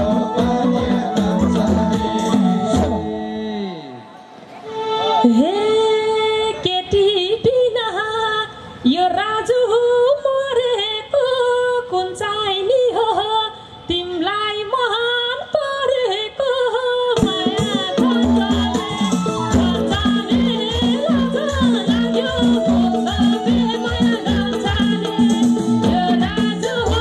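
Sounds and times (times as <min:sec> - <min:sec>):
band drums and bass: 0:00.0 - 0:03.1, 0:17.2 - 0:27.0
woman singing through pa: 0:05.2 - 0:27.0.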